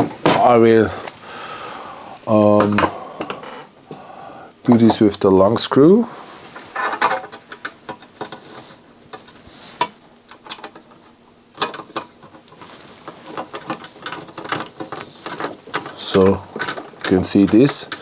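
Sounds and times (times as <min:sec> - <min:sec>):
metal clicks and scrapes: 0:11.6 - 0:18.0.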